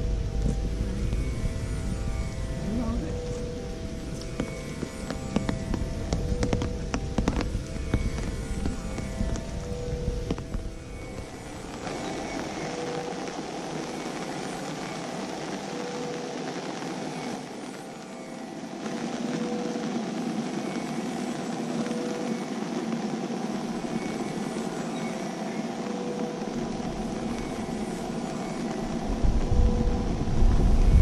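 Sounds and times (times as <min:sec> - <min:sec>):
low rumble: 0:00.0 - 0:13.6, 0:28.8 - 0:31.0
outdoor background noise: 0:00.0 - 0:31.0.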